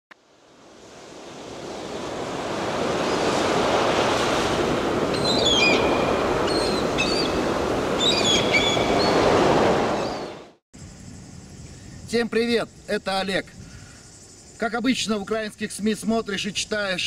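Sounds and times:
sea surf washing: 0:00.2 - 0:10.6
birds chirping: 0:05.1 - 0:10.5.

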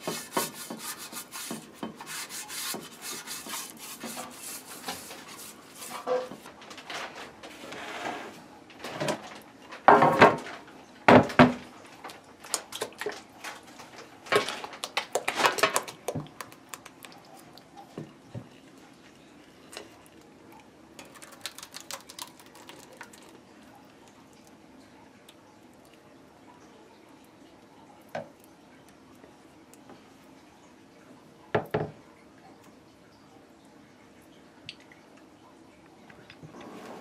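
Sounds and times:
spatula scraping a bowl: 0:00.0 - 0:06.4.

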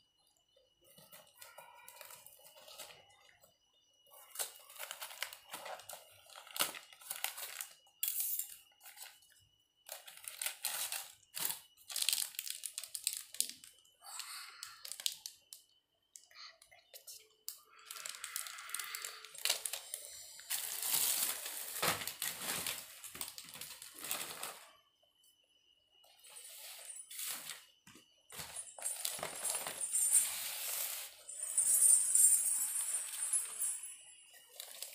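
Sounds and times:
plastic wrapping crinkling: 0:04.3 - 0:07.8, 0:09.9 - 0:13.6, 0:18.0 - 0:24.6.

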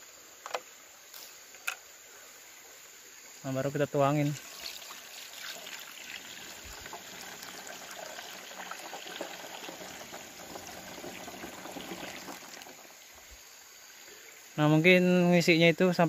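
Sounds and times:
water splashing into liquid: 0:04.2 - 0:12.9
liquid pouring into a tank: 0:04.2 - 0:13.3.

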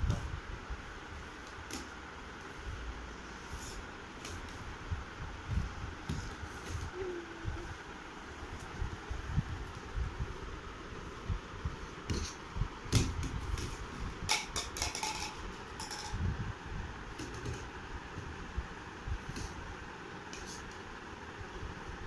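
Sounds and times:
steady background hum: 0:00.0 - 0:22.0
plastic toys clicking and knocking: 0:14.3 - 0:16.2.

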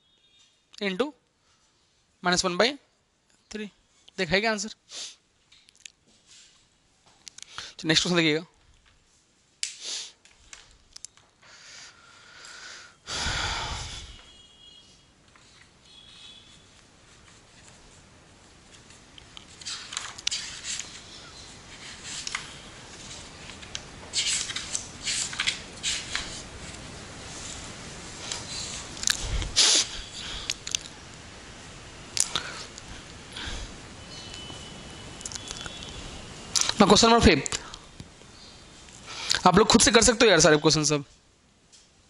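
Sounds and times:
rustling and clicking handling noise: 0:08.6 - 0:11.5, 0:15.2 - 0:29.6.

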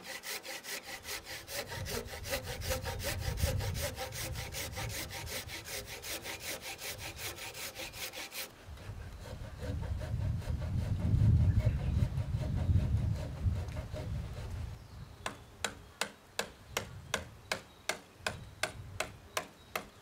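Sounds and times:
handsaw cutting wood: 0:00.0 - 0:14.7.

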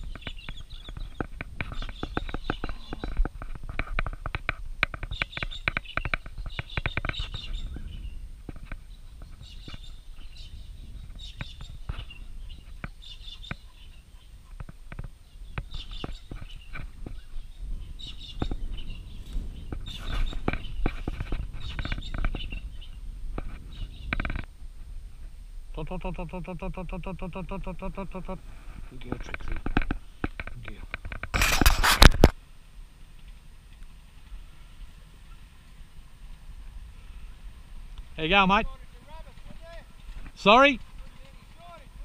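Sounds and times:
footsteps through grass and twigs: 0:00.0 - 0:07.8, 0:14.6 - 0:24.4
wind rumble on microphone: 0:00.0 - 0:25.8.

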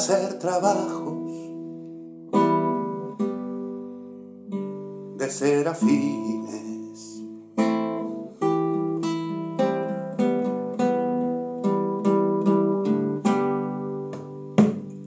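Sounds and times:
classical guitar strumming chords: 0:00.0 - 0:15.0.

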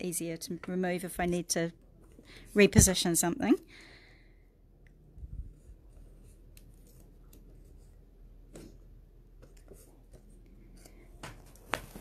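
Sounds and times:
tape rustling: 0:05.9 - 0:08.8.

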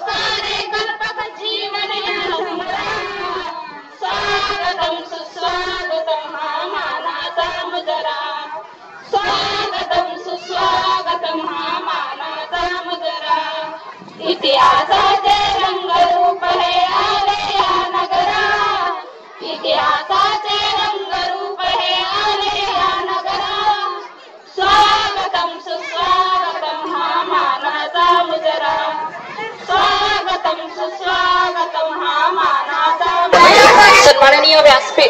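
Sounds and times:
women singing together: 0:00.0 - 0:35.0
breaths: 0:24.1 - 0:24.5.

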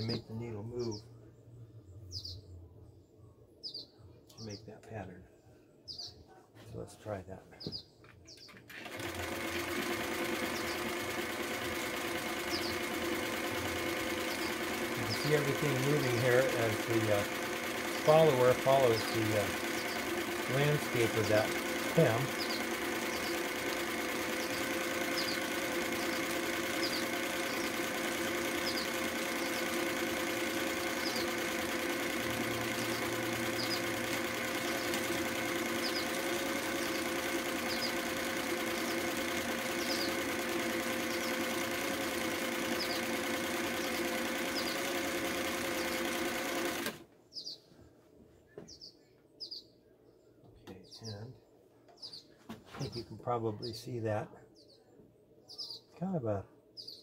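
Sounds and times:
small birds chirping: 0:00.0 - 0:08.7, 0:10.2 - 0:41.8, 0:42.5 - 0:46.3, 0:47.2 - 0:57.0
sewing machine running: 0:08.7 - 0:47.0.

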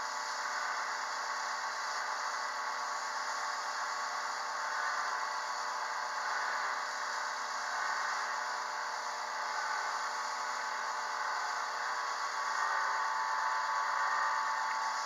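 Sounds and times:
wood lathe whirring: 0:09.4 - 0:15.0.

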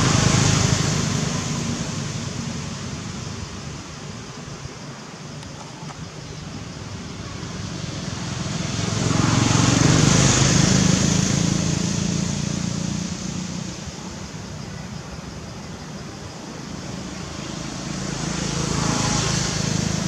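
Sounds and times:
vehicle passing by: 0:00.0 - 0:03.5, 0:07.1 - 0:14.0, 0:16.9 - 0:20.0.

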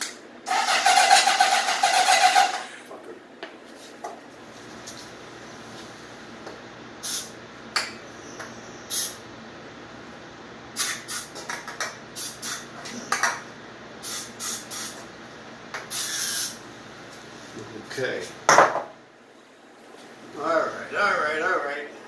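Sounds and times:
aerosol spray can hissing: 0:07.0 - 0:07.3, 0:14.0 - 0:15.0, 0:15.9 - 0:16.6.

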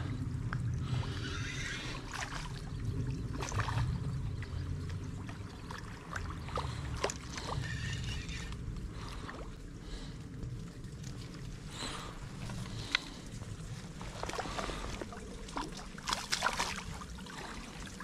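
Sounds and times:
steady low rumble: 0:00.0 - 0:18.0
water splashing and sloshing: 0:00.0 - 0:18.0.

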